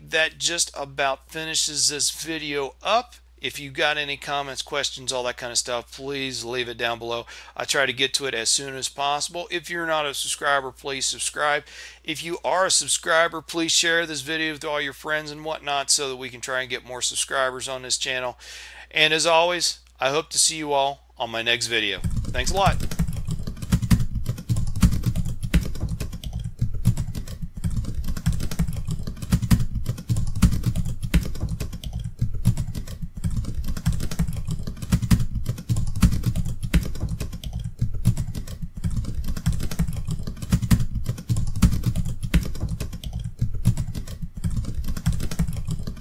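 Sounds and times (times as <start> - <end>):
typing on computer keyboard: 22.0 - 46.0.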